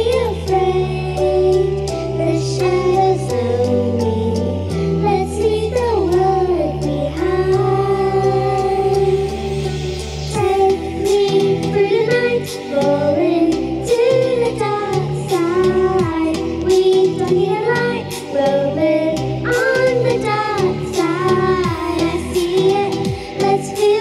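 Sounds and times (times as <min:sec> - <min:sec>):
girls singing into microphones: 0:00.0 - 0:24.0
karaoke backing track: 0:00.0 - 0:24.0.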